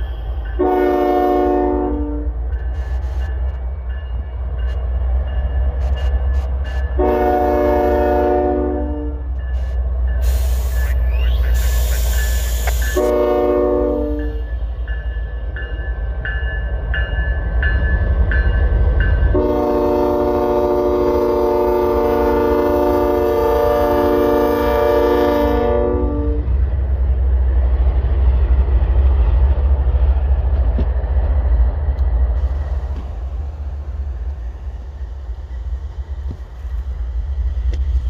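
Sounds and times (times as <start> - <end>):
locomotive horn blast: 0.0 - 2.4, 7.0 - 9.4, 12.6 - 14.5, 19.3 - 26.6
train rumbling past: 0.0 - 38.0
locomotive bell ringing: 2.5 - 7.2, 9.1 - 11.1, 12.0 - 19.7.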